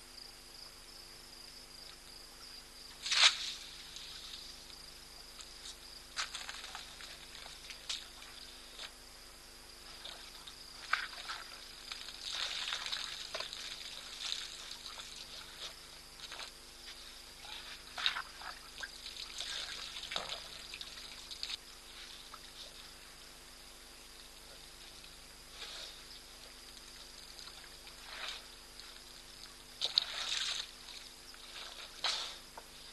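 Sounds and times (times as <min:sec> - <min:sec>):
crickets droning: 0:00.0 - 0:32.9
water splashing and trickling: 0:09.8 - 0:16.6, 0:17.4 - 0:22.7, 0:26.5 - 0:32.4.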